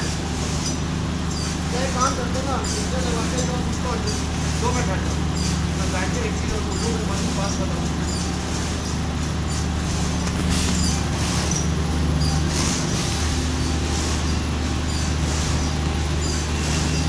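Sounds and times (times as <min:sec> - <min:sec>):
printing press mechanical drone: 0:00.0 - 0:17.0.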